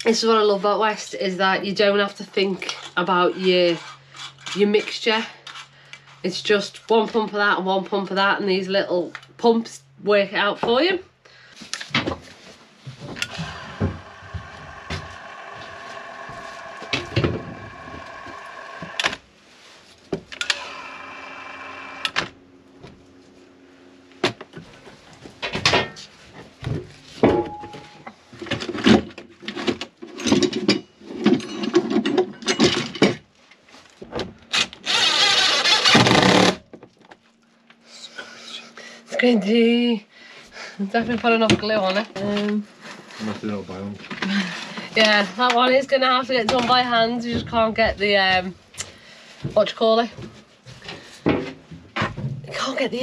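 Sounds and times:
battery caulking gun whirring: 13.2s - 19.2s, 20.4s - 22.3s, 34.6s - 36.6s
impact driver rattling: 13.2s - 19.2s, 34.6s - 36.6s.

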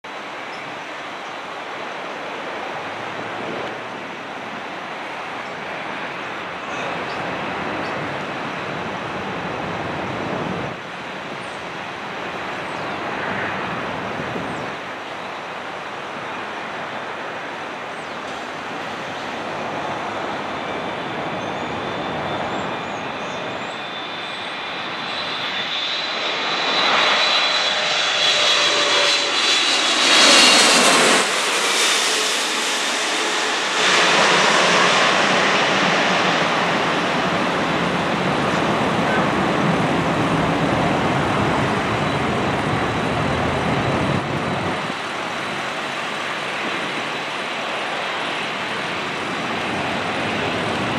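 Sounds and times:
jet engines passing overhead: 0.0s - 50.9s.

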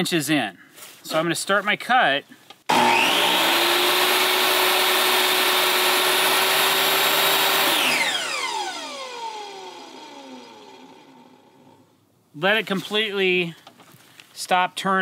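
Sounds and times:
table saw cutting wood: 2.7s - 11.7s
saw blade winding down: 2.7s - 11.8s.

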